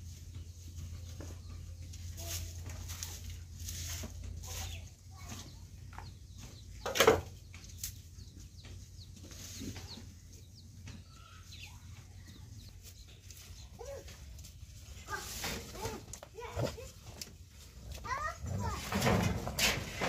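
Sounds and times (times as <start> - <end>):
broom and hoe scraping earth: 0.0 - 6.0, 9.1 - 10.3, 12.8 - 20.0
chickens clucking: 0.0 - 20.0.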